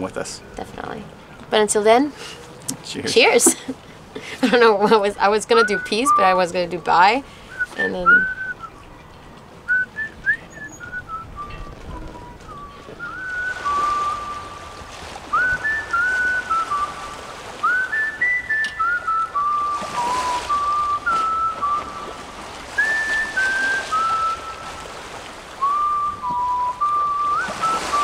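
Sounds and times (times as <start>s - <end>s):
whistled melody: 5.6s - 9.0s, 9.7s - 25.0s, 25.6s - 28.0s.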